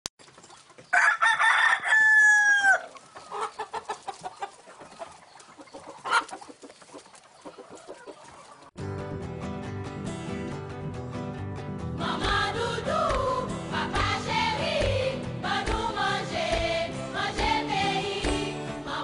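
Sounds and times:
chicken clucking: 0.2s - 8.8s
rooster crowing: 0.9s - 2.9s.

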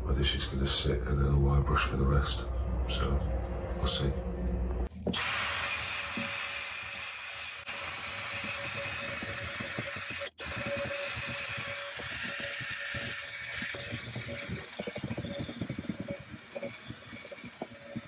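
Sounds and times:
drill motor whine: 5.0s - 18.0s.

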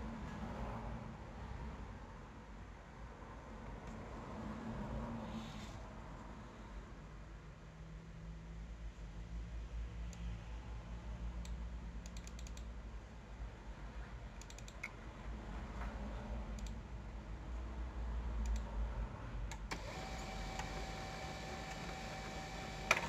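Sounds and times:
printer clicking: 19.6s - 23.0s
printer motor whine: 19.7s - 23.0s.

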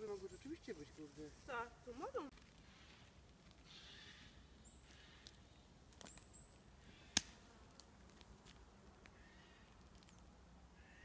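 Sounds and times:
twigs snapping underfoot: 4.9s - 6.4s, 7.1s - 10.3s.

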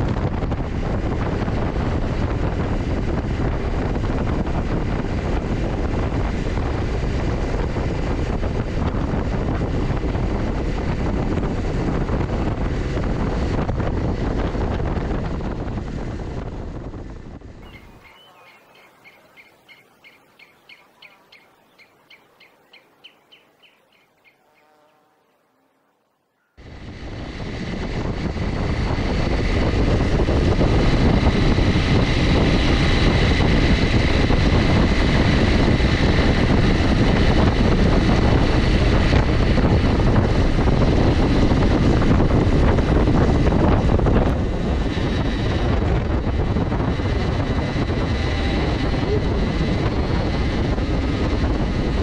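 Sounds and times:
wind noise: 0.0s - 24.6s, 26.0s - 52.0s
small bird chirping: 17.6s - 25.4s.

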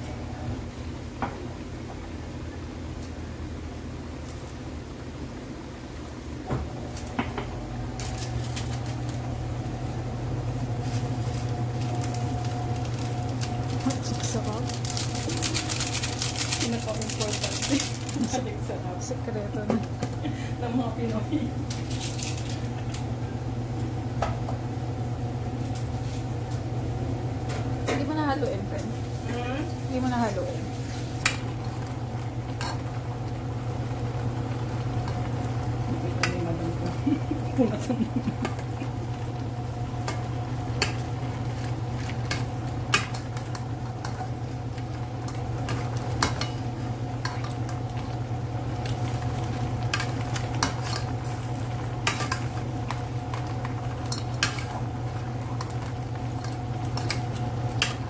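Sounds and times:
motor or fan humming: 0.0s - 58.0s
crabs cooking in sauce: 7.8s - 20.6s, 28.9s - 58.0s
plastic sachet crinkling: 10.9s - 18.4s, 21.7s - 22.6s.

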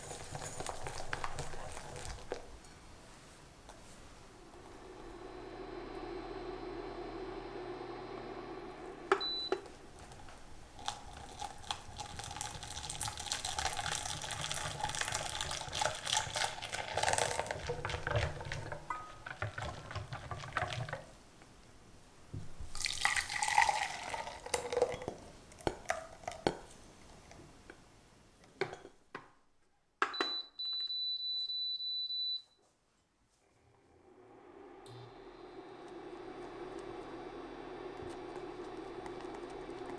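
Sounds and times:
whisk beating liquid in glass bowl: 0.0s - 2.5s, 10.0s - 21.0s
cooktop high beep: 9.1s - 9.7s, 30.1s - 32.5s.

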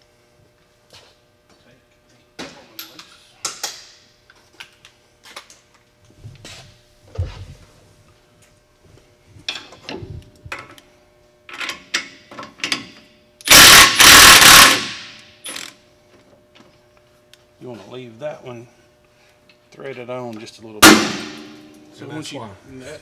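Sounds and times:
impact wrench hammering: 13.5s - 15.7s, 20.8s - 21.8s.

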